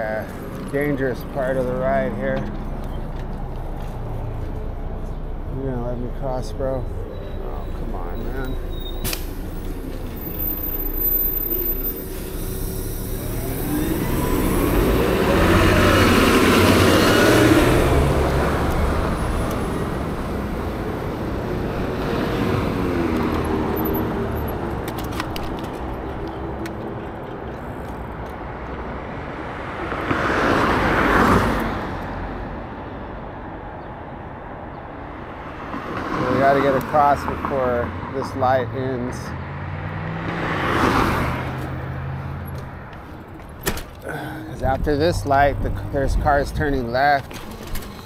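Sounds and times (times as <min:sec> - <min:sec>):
cars passing: 0:00.0 - 0:48.0
steady road hum: 0:00.0 - 0:48.0.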